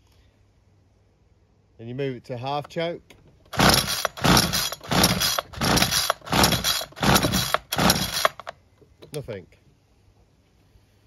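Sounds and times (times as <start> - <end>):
engine turning over: 3.5 - 8.5
recoil starter cord pulls: 3.5 - 8.6.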